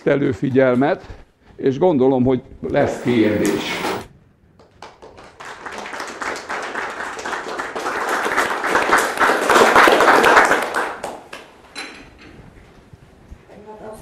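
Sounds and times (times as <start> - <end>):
audience applauding: 2.8 - 4.1, 4.8 - 11.4.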